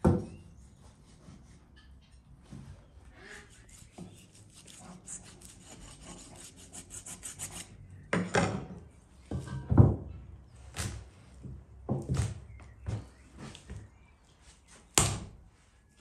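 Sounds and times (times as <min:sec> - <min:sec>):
scraping strokes over meat: 0:03.1 - 0:07.8.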